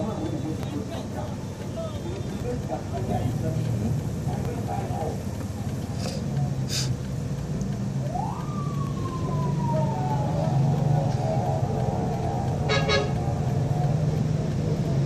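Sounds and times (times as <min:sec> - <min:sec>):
vehicle engine running: 0:00.0 - 0:15.0
siren wail: 0:07.9 - 0:13.9.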